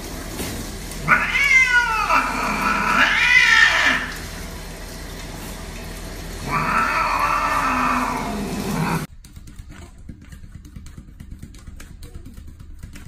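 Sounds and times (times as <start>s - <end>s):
cat yowling: 1.0s - 4.2s, 6.4s - 9.1s.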